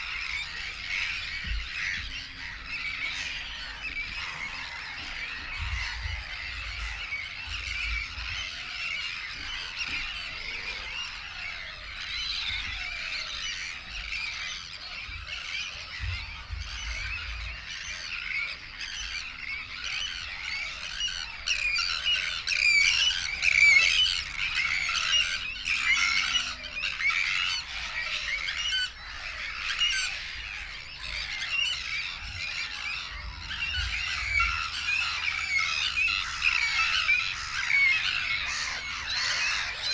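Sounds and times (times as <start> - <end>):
birds squawking in chorus: 0.0 - 39.9.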